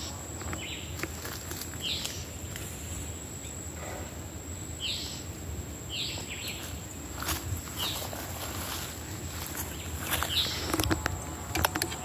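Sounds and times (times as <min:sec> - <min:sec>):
high insect buzz: 0:00.0 - 0:12.0
bird calling: 0:07.7 - 0:12.0.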